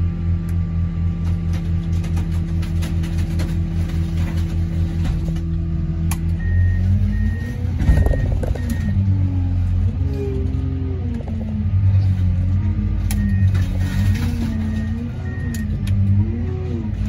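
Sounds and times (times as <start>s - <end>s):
heavy machinery engine humming: 0.0s - 17.0s
reversing alarm beeping: 6.3s - 10.4s, 12.8s - 15.8s
machinery knocks and creaks: 7.8s - 9.1s, 9.9s - 12.8s.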